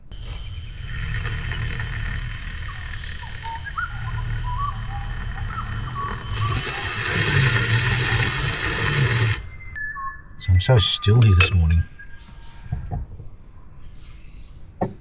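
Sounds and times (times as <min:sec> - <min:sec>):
small birds chirping: 0:02.4 - 0:07.6.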